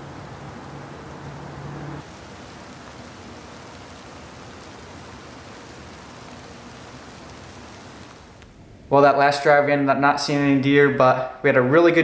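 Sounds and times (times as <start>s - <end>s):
rain on leaf litter: 0.0s - 8.6s.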